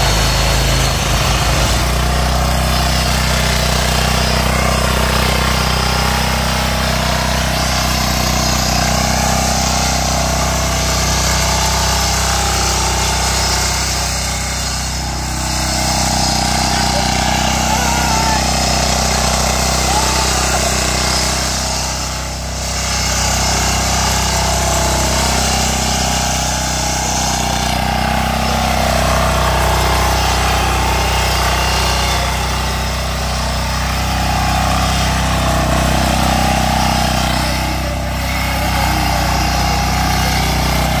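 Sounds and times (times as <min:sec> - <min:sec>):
diesel tiller engine running: 0:00.0 - 0:41.0
tines churning wet soil: 0:00.0 - 0:41.0.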